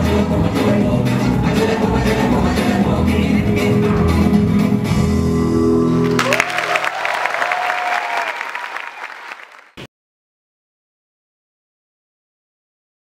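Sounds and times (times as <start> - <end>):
audience applauding: 6.0 - 9.9
audience cheering: 6.0 - 9.9.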